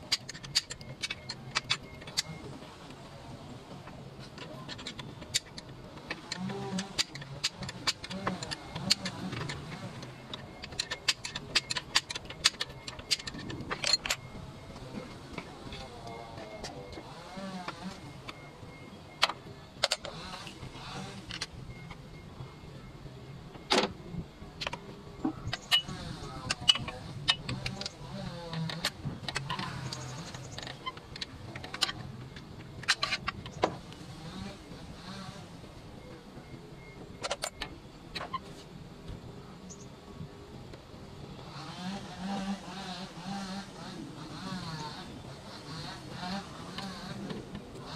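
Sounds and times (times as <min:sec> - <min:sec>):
hand tools clicking against metal: 0:00.0 - 0:02.4, 0:04.3 - 0:14.3, 0:25.4 - 0:33.8
steady low hum: 0:00.0 - 0:47.9.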